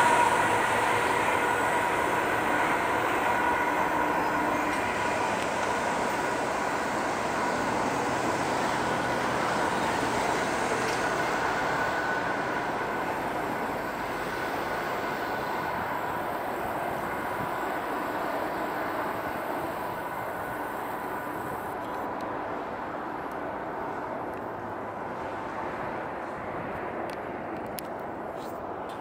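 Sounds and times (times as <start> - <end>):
diesel locomotive engines running: 0.0 - 29.0
train wheels rolling on rails: 0.0 - 29.0.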